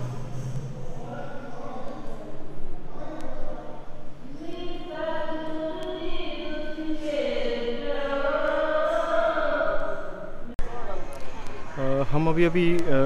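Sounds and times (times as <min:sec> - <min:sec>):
women singing hymns: 0:04.5 - 0:10.4.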